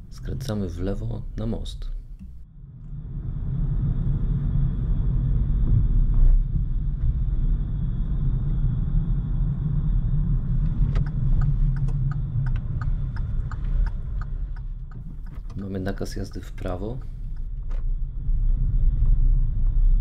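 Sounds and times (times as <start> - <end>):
car engine and road rumble: 0.0 - 20.0
turn indicator clicking: 10.9 - 17.5.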